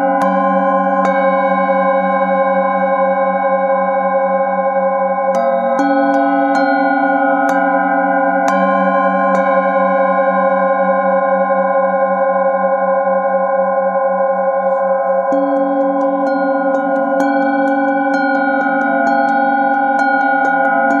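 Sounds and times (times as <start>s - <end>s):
metal singing bowls ringing: 0.0s - 21.0s.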